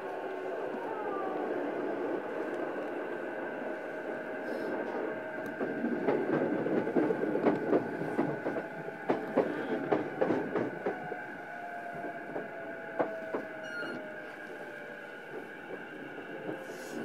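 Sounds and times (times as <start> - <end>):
train wheels clacking over rail joints: 5.6 - 11.0.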